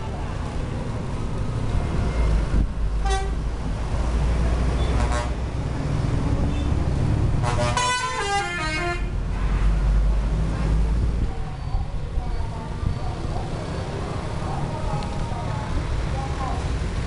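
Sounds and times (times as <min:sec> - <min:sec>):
bus engine rumble: 0:00.0 - 0:17.0
passing traffic: 0:00.0 - 0:17.0
musical bus horn: 0:03.0 - 0:03.4, 0:04.9 - 0:05.4, 0:07.4 - 0:09.2.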